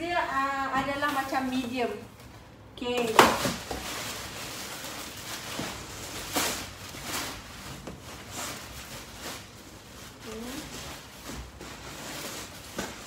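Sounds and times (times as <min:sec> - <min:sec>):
packaging rustling and scraping: 0:03.0 - 0:13.0.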